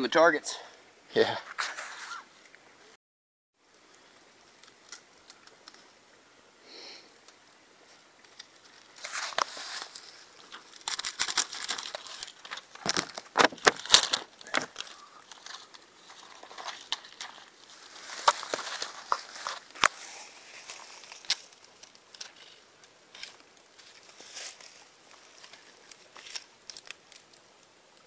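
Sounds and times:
paper rustling and crinkling: 1.5s - 2.2s, 8.2s - 27.4s.

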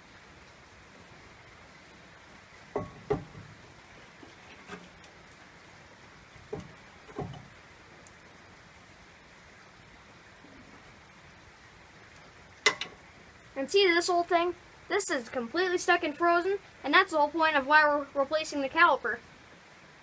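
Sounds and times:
faint steady hiss: 0.0s - 20.0s.

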